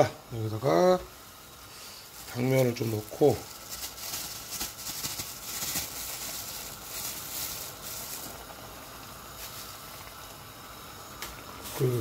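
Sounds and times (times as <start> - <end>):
broth boiling in a pot: 0.0 - 12.0.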